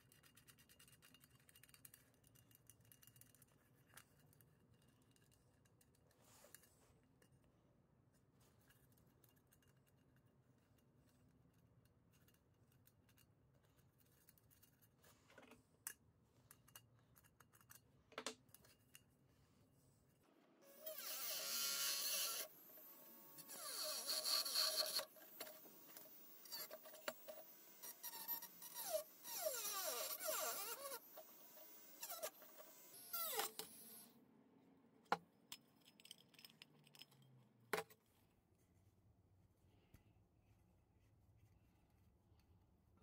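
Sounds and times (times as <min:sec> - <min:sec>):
rotary tool grinding metal: 0:20.7 - 0:34.1.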